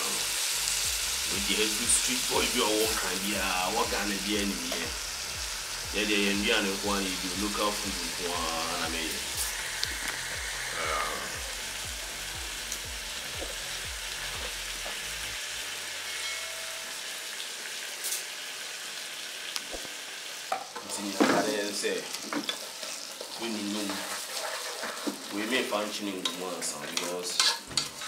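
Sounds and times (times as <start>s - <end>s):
rice sizzling in hot oil: 0.0s - 28.0s
wooden spoon scraping pot: 22.4s - 25.4s.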